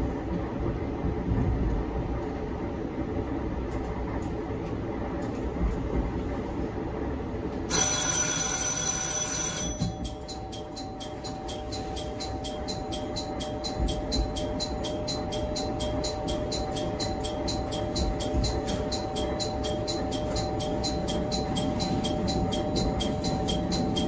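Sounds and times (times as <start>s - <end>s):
diesel railcar rumbling: 0.0s - 24.0s
fast bell ticking: 7.7s - 24.0s.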